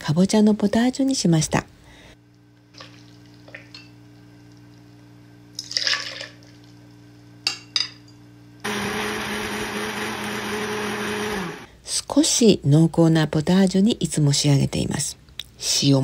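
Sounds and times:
blender motor running: 0:08.6 - 0:11.7.

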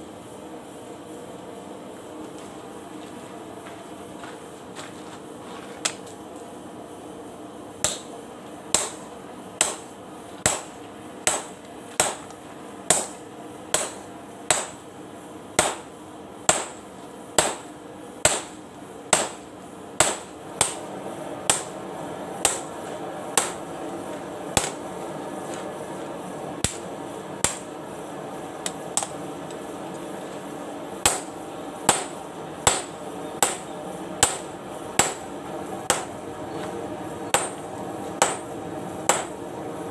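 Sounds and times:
steady hum: 0:00.0 - 0:39.9
hammer striking steel: 0:07.8 - 0:08.1, 0:08.7 - 0:12.3, 0:12.9 - 0:14.8, 0:15.6 - 0:15.9, 0:16.5 - 0:16.8, 0:17.4 - 0:19.4, 0:20.0 - 0:20.8, 0:21.5 - 0:21.7, 0:22.4 - 0:22.7, 0:23.4 - 0:23.6, 0:24.6 - 0:24.8, 0:27.4 - 0:27.7, 0:31.0 - 0:35.2, 0:35.9 - 0:36.2, 0:37.3 - 0:37.6, 0:38.2 - 0:38.5, 0:39.1 - 0:39.4.

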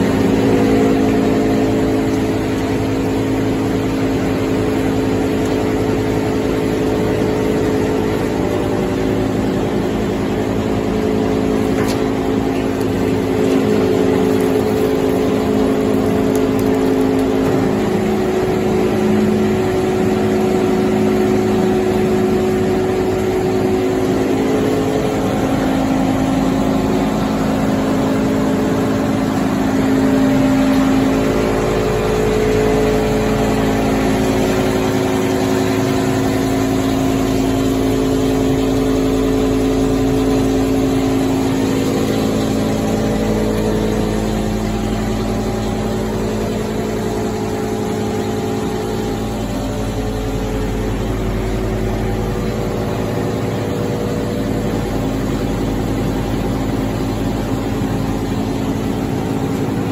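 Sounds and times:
machinery drone with hum tones: 0:00.0 - 0:59.9.

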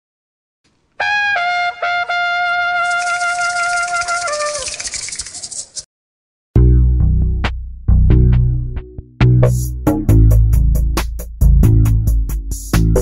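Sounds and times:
brass horn jingle: 0:01.0 - 0:04.9
hissing percussion: 0:02.8 - 0:05.9.

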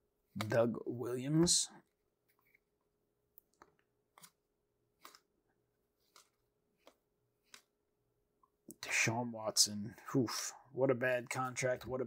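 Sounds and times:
soft ticks of cards flipped: 0:03.3 - 0:04.4, 0:05.0 - 0:05.3, 0:06.0 - 0:07.7.

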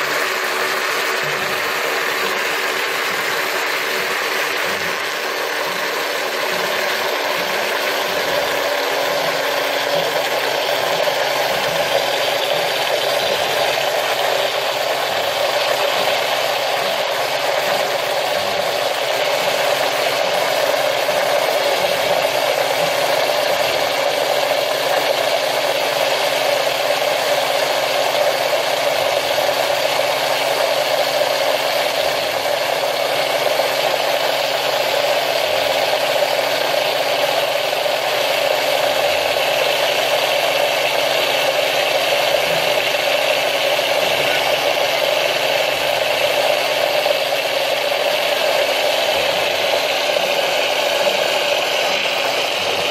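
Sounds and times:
electric blender motor running: 0:00.0 - 0:52.9.

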